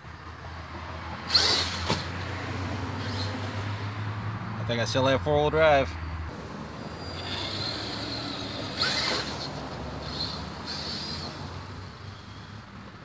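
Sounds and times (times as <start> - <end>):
toy truck electric motor whining: 1.2 - 2.2, 3.0 - 3.6, 6.8 - 12.8.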